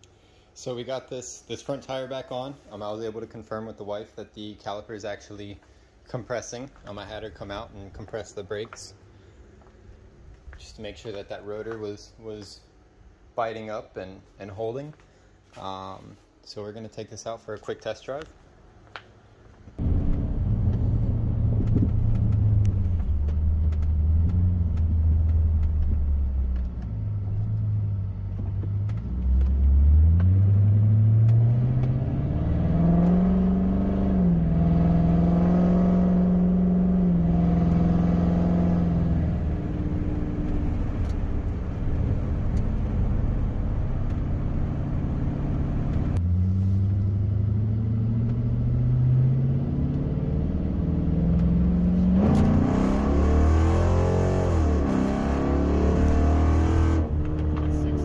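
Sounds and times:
road noise: 18.2s - 58.0s
car engine: 19.8s - 58.0s.

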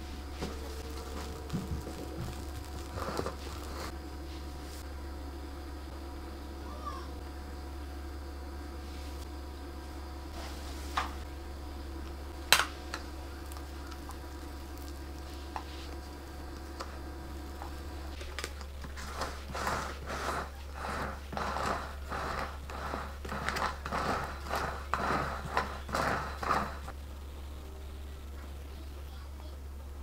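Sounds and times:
steady low hum: 0.0s - 30.0s
plastic scraper scraping frosting: 18.8s - 26.9s.

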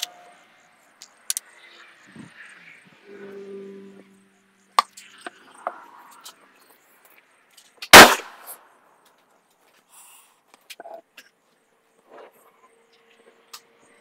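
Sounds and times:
loud gunshot: 7.9s - 8.6s.

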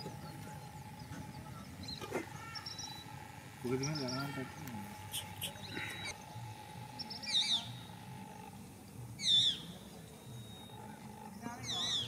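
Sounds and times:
bird call high wavering: 7.0s - 7.9s, 9.2s - 10.8s.

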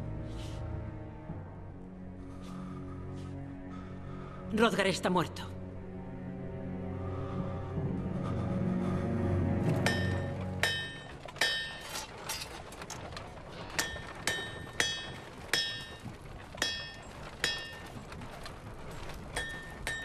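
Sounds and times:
hammer striking blade on anvil: 9.8s - 12.1s.

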